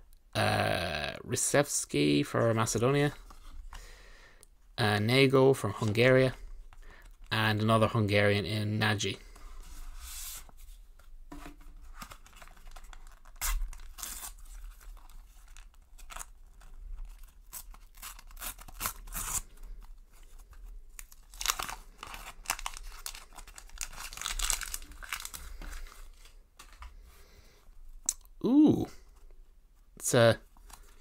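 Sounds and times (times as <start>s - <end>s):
sticker packet wrapper tearing: 21.1s - 25.4s.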